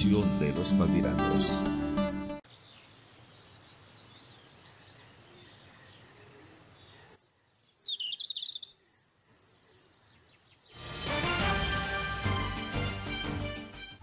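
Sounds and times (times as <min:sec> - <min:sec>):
birds chirping: 0:02.4 - 0:10.8.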